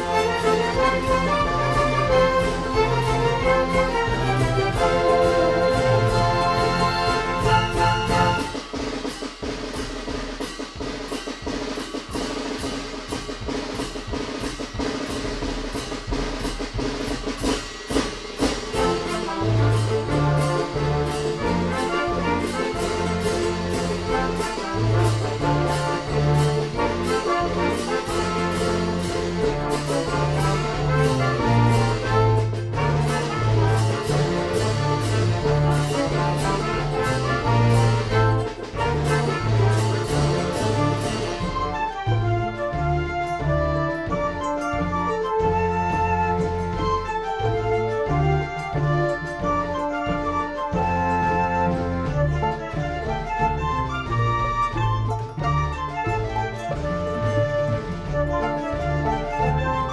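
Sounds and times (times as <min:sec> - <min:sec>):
double bass line: 0:00.0 - 0:08.6, 0:18.7 - 0:59.9
held instrumental tones: 0:00.0 - 0:09.3
violins: 0:00.0 - 0:09.3, 0:18.3 - 0:59.9
cymbals: 0:00.0 - 0:53.1
brass melody: 0:00.0 - 0:59.9
drums with snare rolls: 0:00.0 - 0:59.9.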